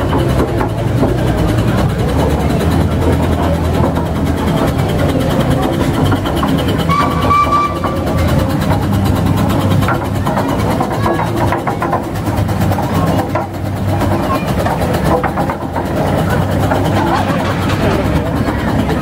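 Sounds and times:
engine parts ticking and clattering: 0.0 - 19.0
steam roller engine rumbling: 0.0 - 19.0.

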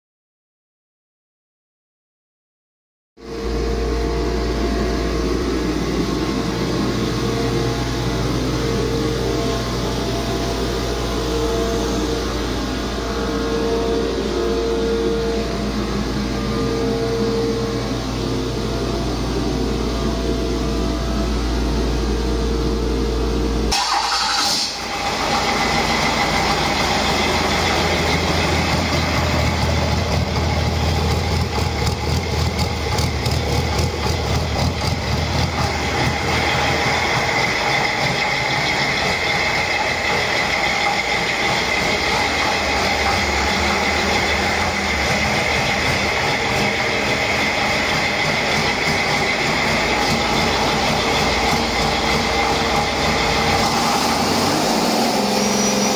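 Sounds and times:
diesel engine starting and running: 3.2 - 55.9.

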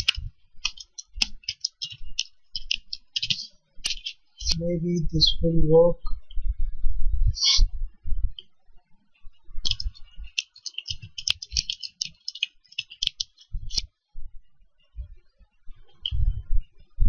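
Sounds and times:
typing on computer keyboard: 0.0 - 4.2, 9.7 - 13.8.

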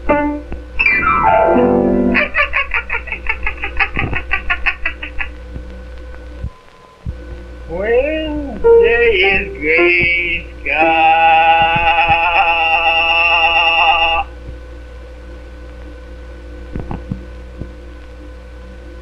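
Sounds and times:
low hum and hiss: 0.0 - 19.0
cartoon voice singing: 8.6 - 14.3.

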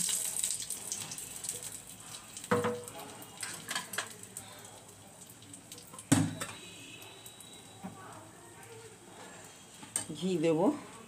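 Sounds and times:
spices sizzling in hot oil: 0.0 - 10.4.

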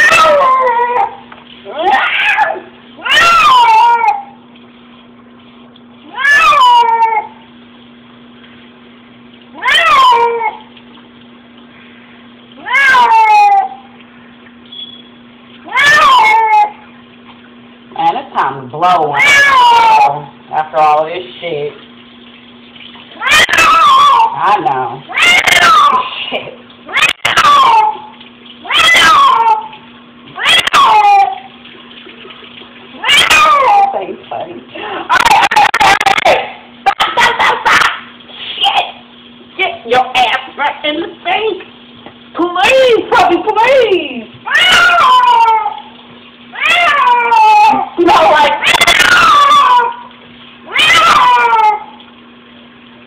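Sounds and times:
cat yowling: 0.0 - 4.4, 6.0 - 7.4, 9.5 - 10.7, 12.6 - 14.0, 15.6 - 16.9, 18.9 - 20.3, 23.2 - 26.3, 26.9 - 29.8, 30.4 - 31.6, 33.0 - 34.1, 35.1 - 36.2, 44.4 - 52.0
faint steady hum: 0.0 - 53.0.

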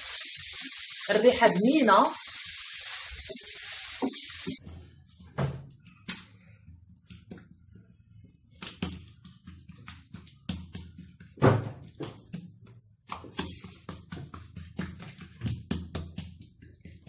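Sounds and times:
hands slapping dough on countertop: 7.0 - 7.6, 8.5 - 17.0.

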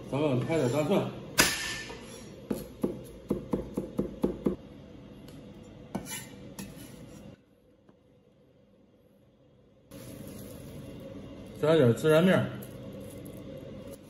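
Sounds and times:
blade scraping cutting board: 5.9 - 7.4.

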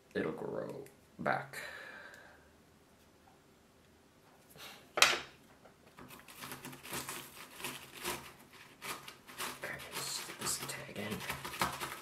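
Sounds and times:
plant label scraping in bark mix: 6.2 - 12.0.

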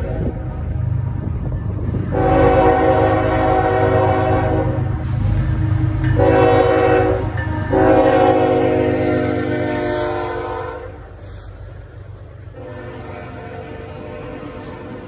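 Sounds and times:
diesel engines rumbling: 0.0 - 15.0
train air horn blasts: 2.1 - 11.4, 12.5 - 15.0.

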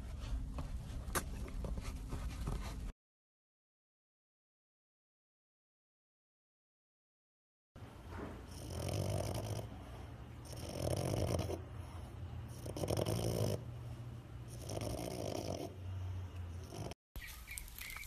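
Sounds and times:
dog snoring: 8.3 - 17.0.

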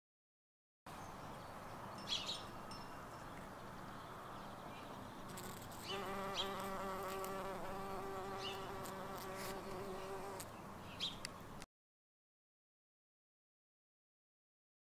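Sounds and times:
bumblebee buzzing in flight: 5.3 - 10.5.

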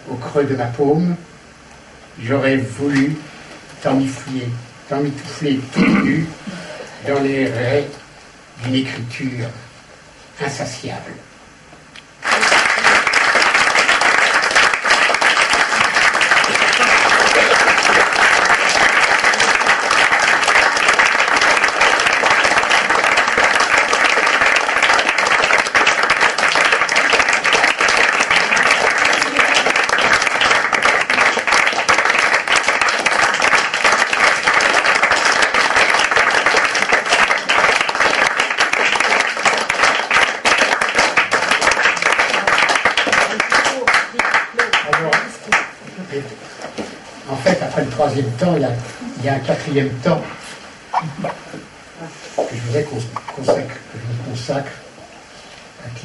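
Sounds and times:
audience applauding: 12.2 - 45.8.

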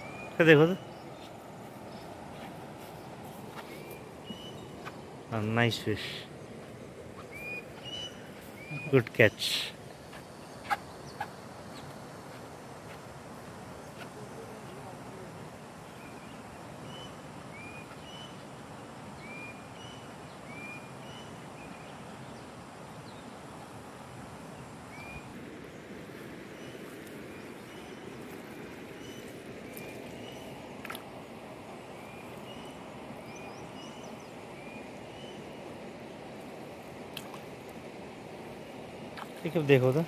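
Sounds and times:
bird chirping: 0.0 - 6.3, 7.2 - 12.0, 32.0 - 35.6.

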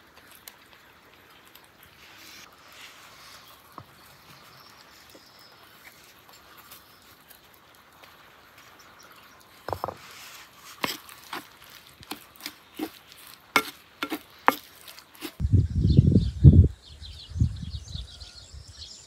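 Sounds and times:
spoon stirring food in clay dish: 9.5 - 15.4
spoon knocking against clay: 10.8 - 15.4.

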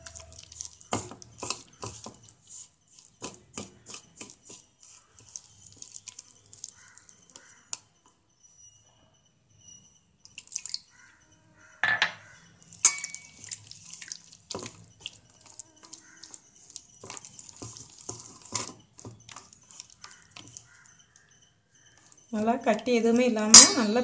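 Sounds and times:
fingers scraping metal bowl: 0.0 - 5.4
wet paste squelching by hand: 0.0 - 7.8, 12.7 - 20.8.

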